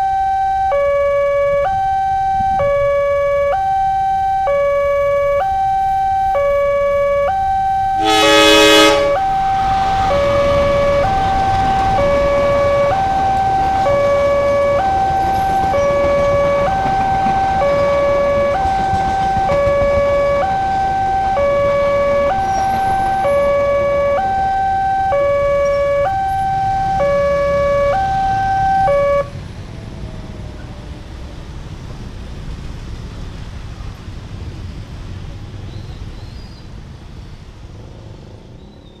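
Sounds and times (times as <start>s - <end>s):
level crossing two-tone alarm: 0.0s - 29.3s
motorcycles and cars passing: 8.8s - 35.7s.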